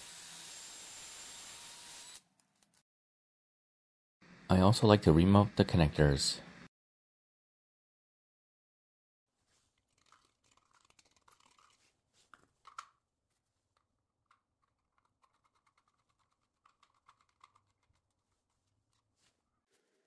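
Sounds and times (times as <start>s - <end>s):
plastic parts clicking and scraping: 9.8s - 13.0s, 13.8s - 19.3s.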